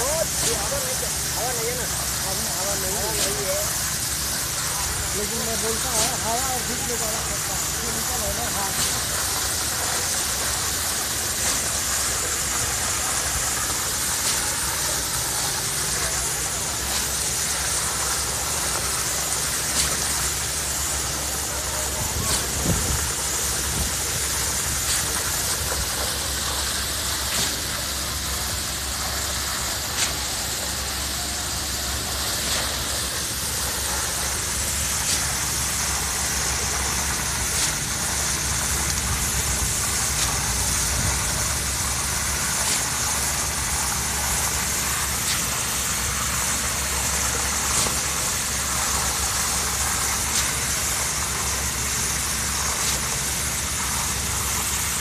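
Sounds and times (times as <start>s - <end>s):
concrete pump engine drone: 0.0s - 55.0s.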